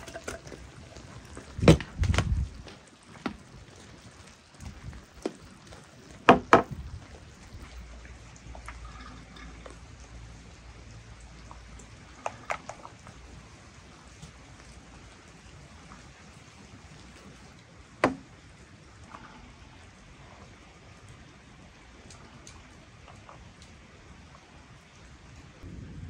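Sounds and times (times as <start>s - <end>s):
sharp knocks: 18.0s - 18.2s.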